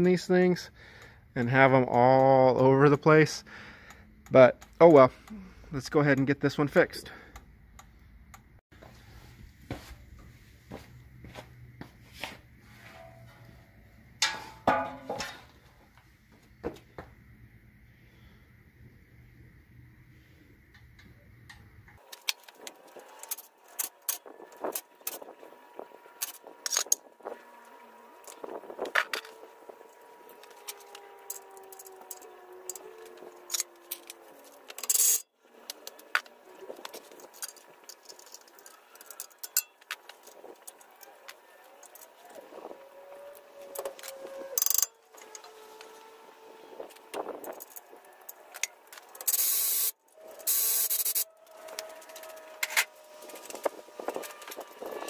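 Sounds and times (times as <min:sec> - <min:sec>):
metallic scrape: 0:12.6 - 0:15.5
metal tools clicking on hub: 0:30.4 - 0:35.2, 0:36.8 - 0:40.8, 0:43.8 - 0:45.4, 0:47.4 - 0:51.3
tools clinking on metal: 0:37.4 - 0:39.8.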